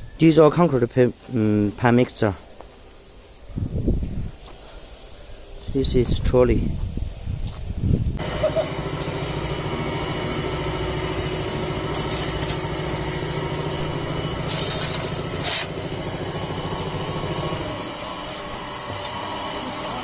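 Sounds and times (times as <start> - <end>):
diesel engine running: 8.2 - 20.0
shovel scraping soil: 11.4 - 20.0.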